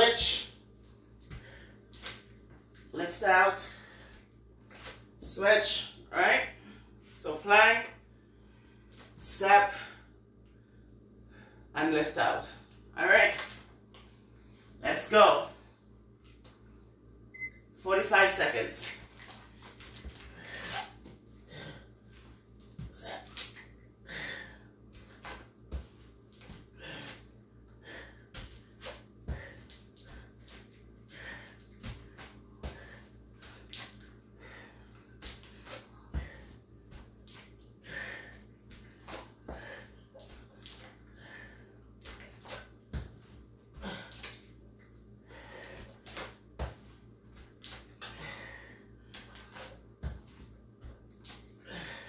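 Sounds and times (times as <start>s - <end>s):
woman breathing hard: 24.0s - 24.9s, 37.8s - 40.0s, 41.0s - 41.8s, 45.2s - 46.0s, 48.1s - 49.0s, 51.6s - 52.0s.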